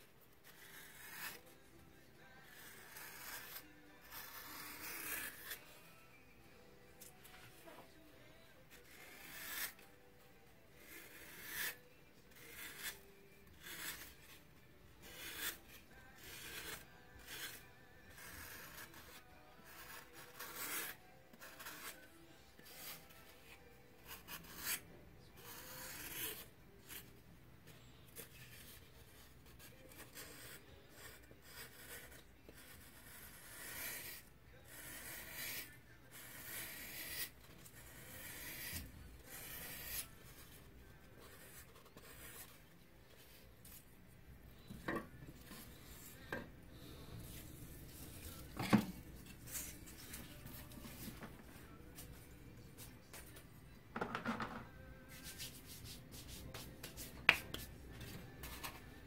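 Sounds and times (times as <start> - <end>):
knife scraping foam: 0.5 - 1.5, 2.4 - 5.6, 8.8 - 9.9, 10.8 - 14.4, 15.0 - 23.2, 24.0 - 24.8, 25.4 - 27.0, 28.2 - 40.6.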